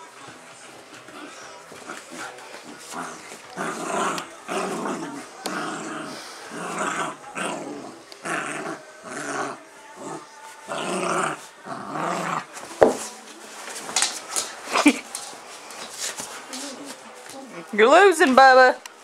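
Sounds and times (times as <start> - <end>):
dogs growling in play: 0.6 - 12.7.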